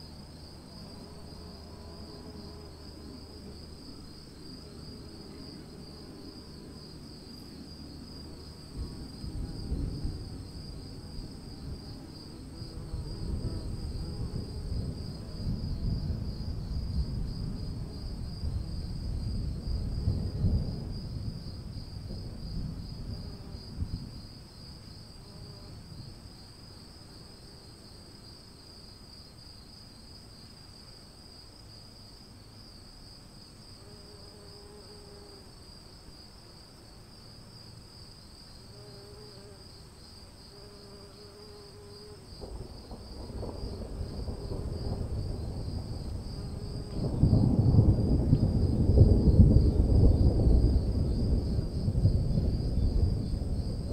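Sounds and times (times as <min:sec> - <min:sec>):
crickets chirping: 0:00.0 - 0:53.9
distant thunder rumbling: 0:08.2 - 0:24.2, 0:42.3 - 0:53.9.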